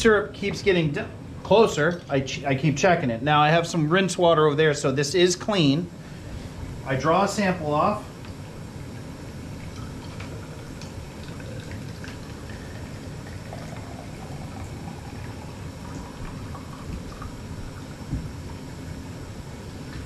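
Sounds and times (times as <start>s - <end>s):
syrup boiling and bubbling: 4.8s - 20.0s
liquid pouring: 8.4s - 19.1s.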